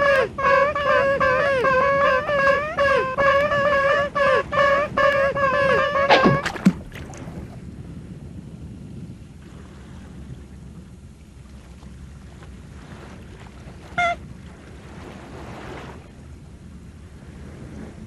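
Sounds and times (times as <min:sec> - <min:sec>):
sea water: 0:00.0 - 0:18.0
wind: 0:00.0 - 0:18.0
short high-pitched squeak: 0:00.4 - 0:06.8.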